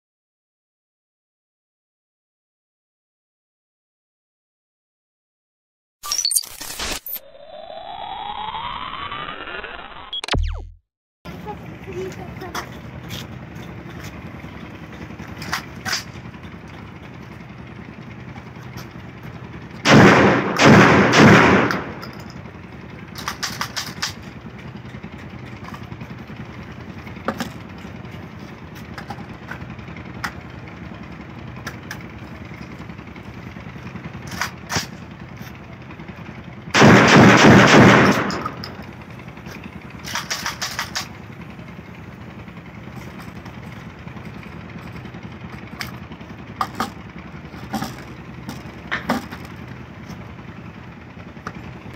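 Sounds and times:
shotgun shots: 0:19.8 - 0:22.1, 0:36.8 - 0:38.8.

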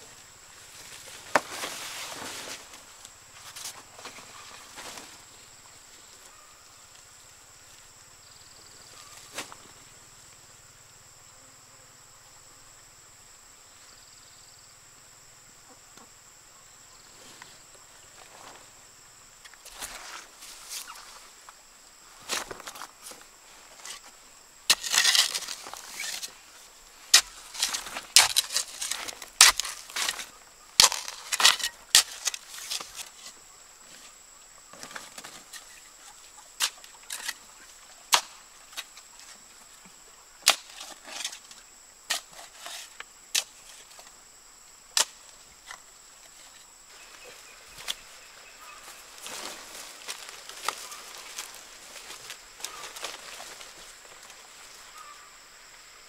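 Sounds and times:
wooden stick striking soil: 0:24.7 - 0:26.4, 0:27.1 - 0:33.2, 0:38.1 - 0:38.9, 0:40.4 - 0:41.4, 0:45.0 - 0:45.8.

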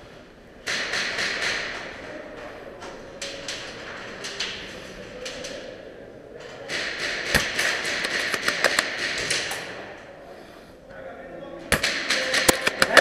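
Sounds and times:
clicks and knocks: 0:06.7 - 0:09.7, 0:11.7 - 0:13.0.

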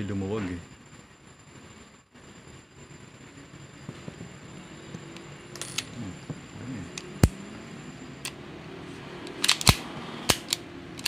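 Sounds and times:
pistol hammer metallic clicks: 0:09.2 - 0:11.0.

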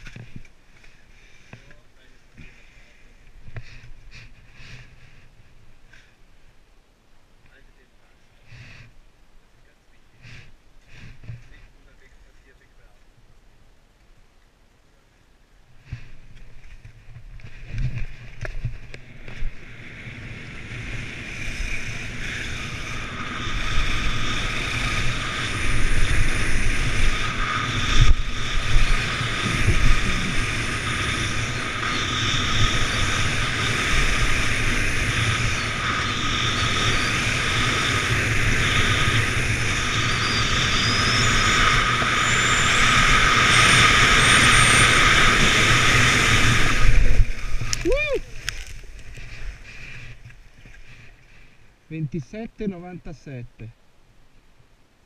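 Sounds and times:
skis scraping over snow: 0:15.8 - 0:53.0
wind buffeting microphone: 0:16.5 - 0:50.2.

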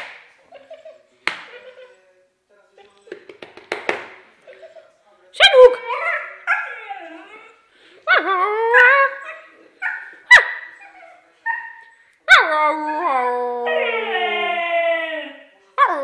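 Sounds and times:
dog howling calls: 0:12.3 - 0:15.5.

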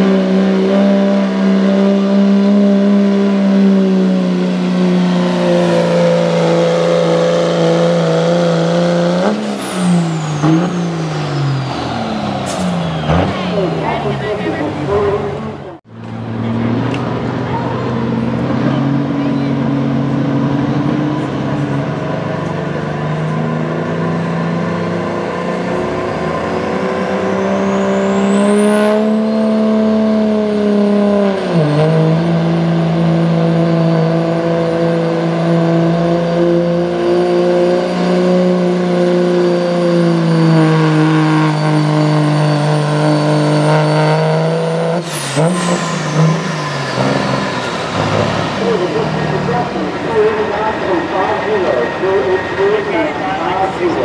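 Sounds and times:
turbocharger whistle: 0:00.0 - 0:14.1, 0:25.3 - 0:53.8
diesel engine under load: 0:00.0 - 0:54.0.

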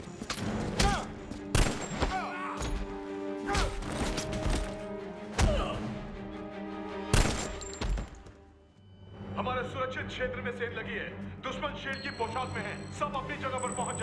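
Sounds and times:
orchestral score: 0:00.0 - 0:12.1
loud gunshots: 0:01.5 - 0:02.0.

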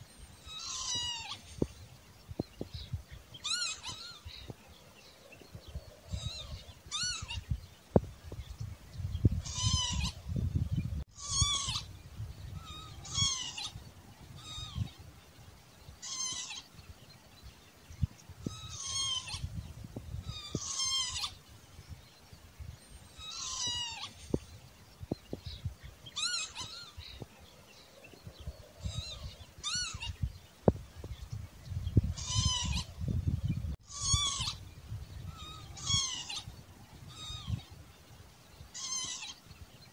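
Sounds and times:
lapwing calling: 0:00.3 - 0:01.8, 0:02.8 - 0:04.6, 0:05.3 - 0:07.7, 0:09.3 - 0:15.1, 0:16.0 - 0:16.9, 0:18.4 - 0:21.5, 0:22.9 - 0:30.4, 0:31.0 - 0:37.8, 0:38.6 - 0:39.6.

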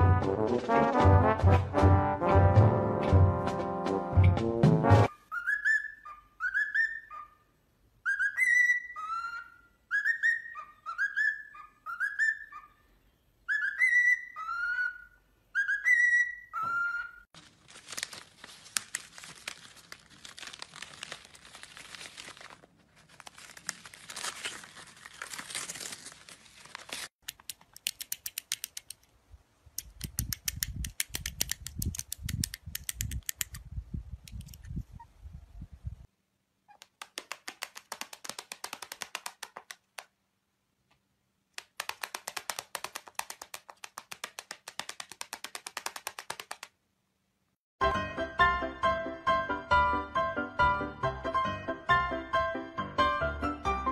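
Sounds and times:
cockatiel whistling a tune: 0:05.1 - 0:07.4, 0:08.0 - 0:12.8, 0:13.4 - 0:17.2
paper crinkling and tearing: 0:17.4 - 0:27.2
rapid clicks: 0:36.9 - 0:40.1, 0:41.6 - 0:46.8.

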